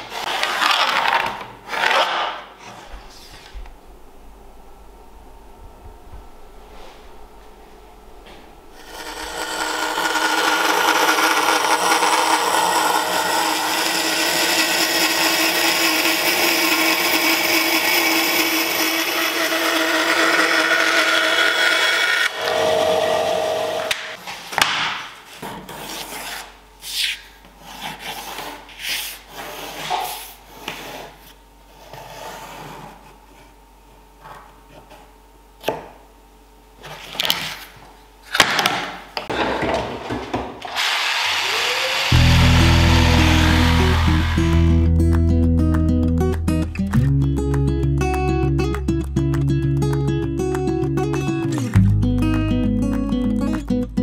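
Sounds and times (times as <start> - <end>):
scroll saw cutting plywood: 8.8 - 24.2, 40.6 - 44.9.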